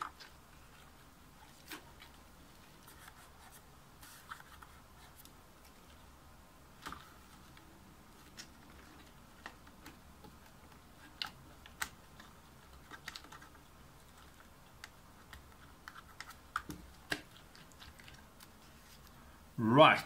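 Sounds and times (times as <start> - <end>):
faint clicks and taps of keyboard parts: 8.3 - 19.1.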